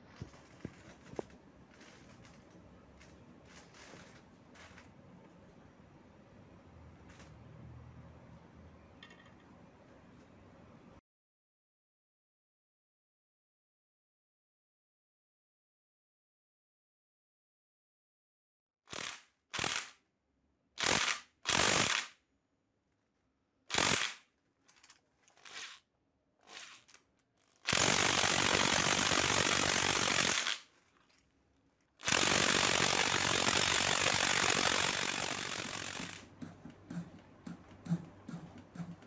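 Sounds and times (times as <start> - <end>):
cordless power tool spinning: 25.3 - 25.8, 26.4 - 30.6, 32.0 - 36.3.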